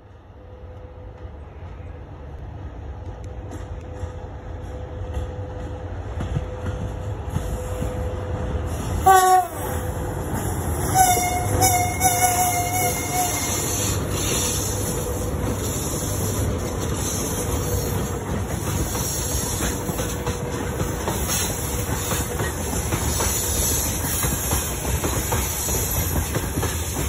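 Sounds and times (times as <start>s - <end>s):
freight train passing: 0.0s - 27.0s
wavering train horn: 7.7s - 10.0s, 10.7s - 15.3s
train horn blast: 9.0s - 9.9s, 10.8s - 14.0s.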